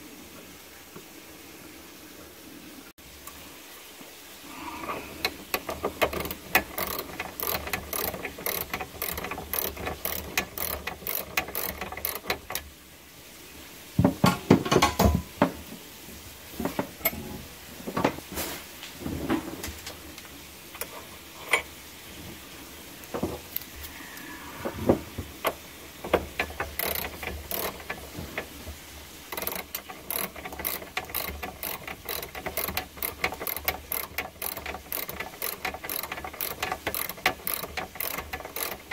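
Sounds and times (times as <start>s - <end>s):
ratchet wrench clicking: 5.2s - 12.7s, 25.4s - 38.9s.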